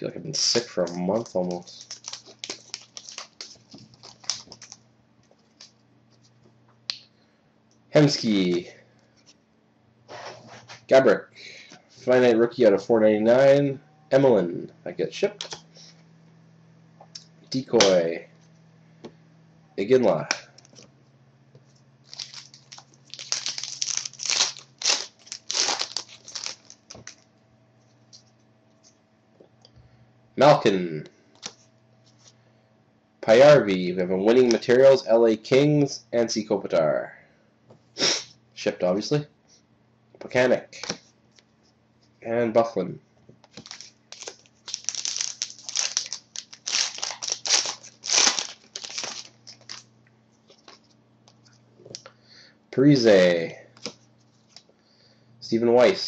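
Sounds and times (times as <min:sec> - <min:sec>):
card pack wrapper crinkling: 0:00.4 - 0:04.8, 0:22.0 - 0:27.3, 0:43.5 - 0:49.9.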